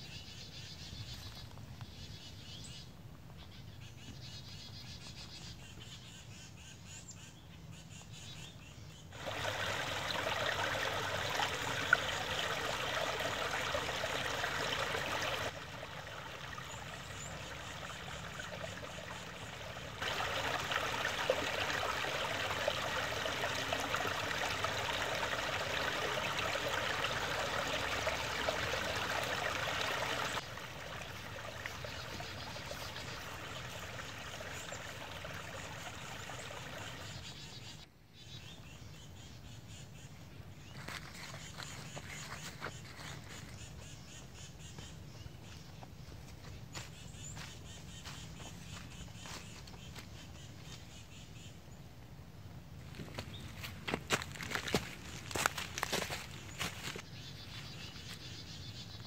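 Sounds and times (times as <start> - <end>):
creek trickling over stones: 9.1 - 37.4, 40.7 - 44.0, 46.4 - 50.9, 52.8 - 58.6.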